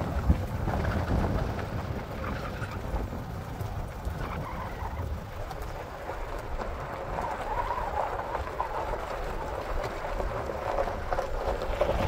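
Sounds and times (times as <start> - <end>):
tyres crunching over stones: 5.1 - 12.0.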